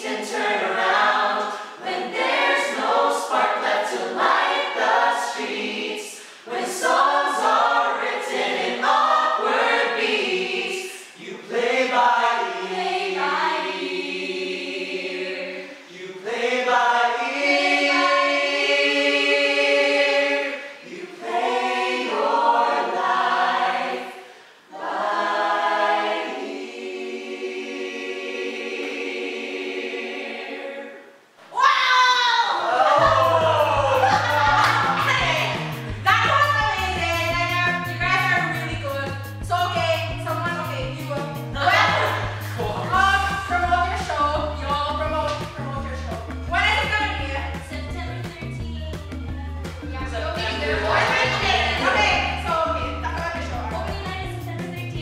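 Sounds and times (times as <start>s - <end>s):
a cappella choir singing: 0.0s - 31.4s, 32.5s - 55.0s.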